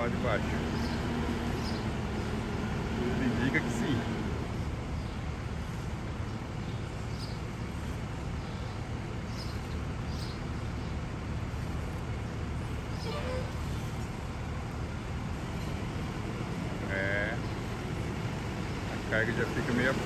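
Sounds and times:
diesel truck engine rumbling: 0:00.0 - 0:20.0.

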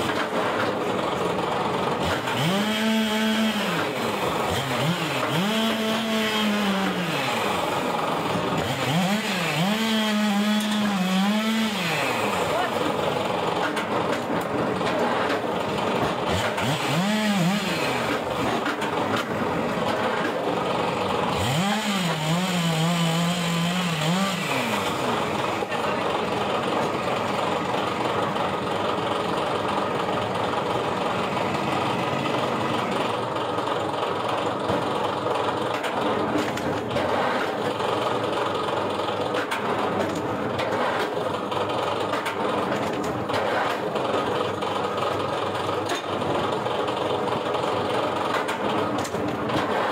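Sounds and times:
log splitter motor running: 0:00.0 - 0:49.9.

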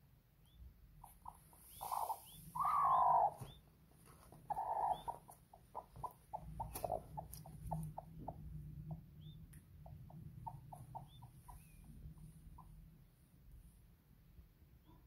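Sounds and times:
low steady hum: 0:00.0 - 0:15.0
chicks peeping: 0:00.4 - 0:12.8
hen clucking softly: 0:01.0 - 0:03.6, 0:04.4 - 0:12.8.

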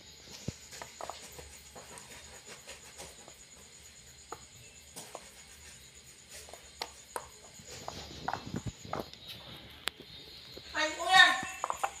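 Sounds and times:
knife scraping fruit seeds: 0:00.2 - 0:10.0, 0:11.0 - 0:12.0
seeds dropping onto a plate: 0:06.4 - 0:12.0.

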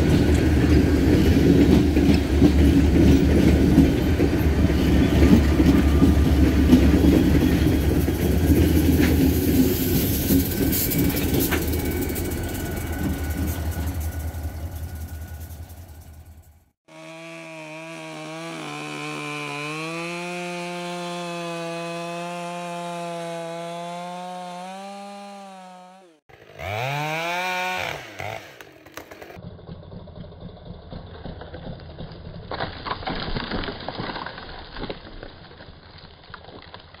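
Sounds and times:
chainsaw running: 0:16.8 - 0:32.5
wood cracking: 0:28.2 - 0:29.4, 0:31.8 - 0:37.0.

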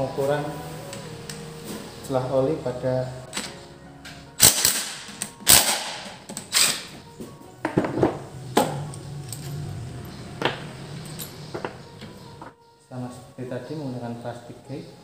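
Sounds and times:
faint background music: 0:00.0 - 0:15.0
metallic clinks and knocks: 0:08.5 - 0:12.5.

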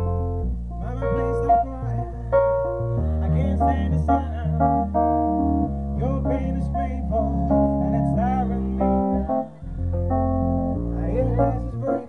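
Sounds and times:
guitar and bass backing track: 0:00.0 - 0:12.0
man singing: 0:00.7 - 0:05.1, 0:06.0 - 0:09.8, 0:10.8 - 0:12.0.

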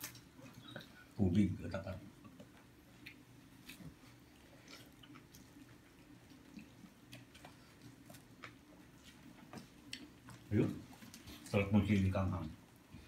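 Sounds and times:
low room hum: 0:00.0 - 0:13.0
people eating and chewing: 0:00.0 - 0:13.0.

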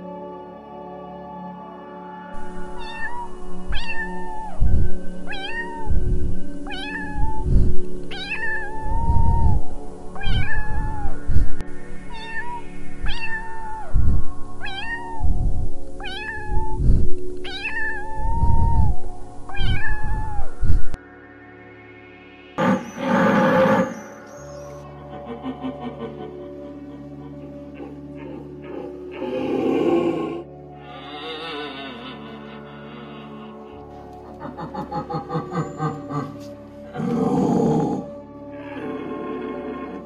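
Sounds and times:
background music: 0:00.0 - 0:40.0
kitten meowing: 0:02.5 - 0:21.0.

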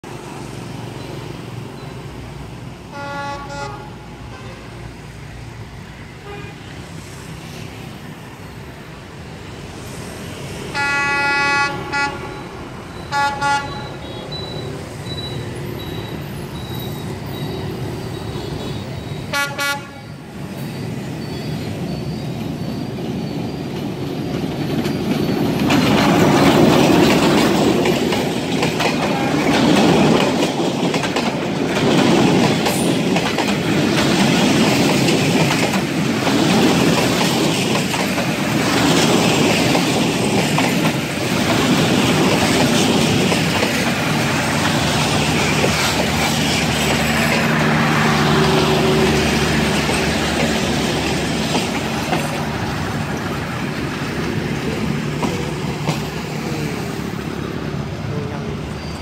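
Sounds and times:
train passing with rushing wheels: 0:00.0 - 0:59.0
train rumble: 0:00.0 - 0:59.0
train horn blasts: 0:02.9 - 0:04.7, 0:06.2 - 0:06.6, 0:10.8 - 0:12.4, 0:13.1 - 0:14.2, 0:19.3 - 0:20.1.

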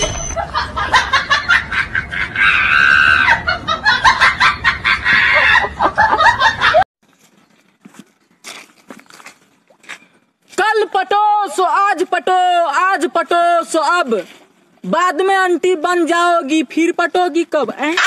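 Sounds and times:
shrill cackling and shrieking: 0:02.1 - 0:03.5.

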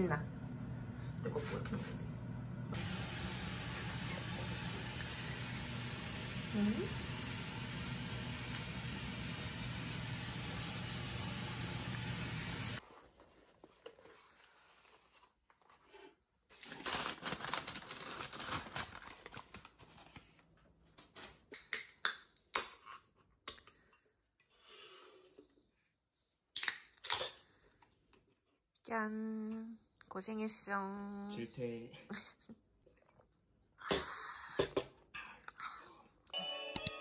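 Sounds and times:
paper bag and foil crinkling: 0:16.5 - 0:20.4.

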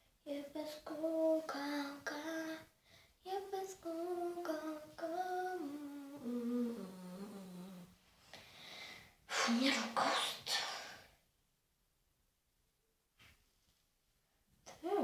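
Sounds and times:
girl humming a slow tune: 0:03.8 - 0:07.9.

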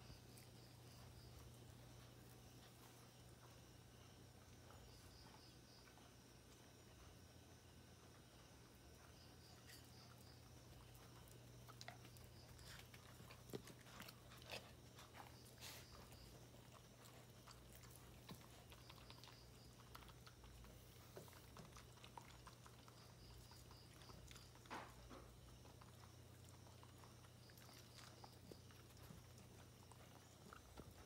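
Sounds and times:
dogs play-biting clicks and chewing: 0:09.6 - 0:31.0.

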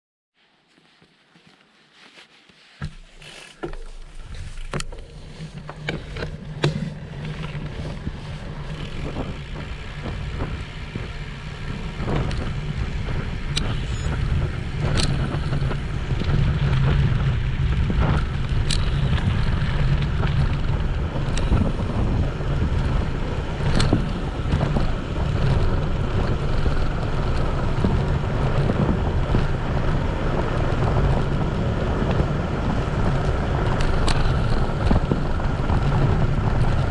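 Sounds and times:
bicycle tyre rumble: 0:00.4 - 0:36.9
bike parts clicking and knocking: 0:02.8 - 0:10.6
wind buffeting microphone: 0:03.7 - 0:36.9.

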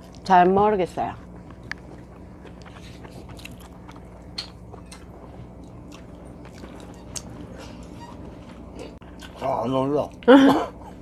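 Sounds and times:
steady low hum: 0:00.0 - 0:11.0
chewing and biting: 0:01.4 - 0:07.3.

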